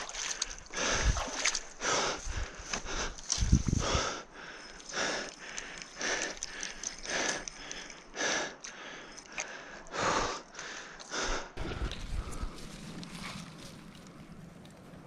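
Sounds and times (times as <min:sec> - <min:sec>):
lake water sloshing: 0:00.0 - 0:04.2
person breathing heavily: 0:00.2 - 0:12.7.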